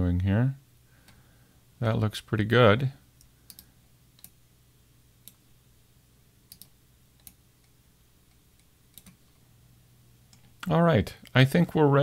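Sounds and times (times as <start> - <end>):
low steady hum: 0.0 - 12.0
mouse and keyboard clicks: 6.5 - 9.2.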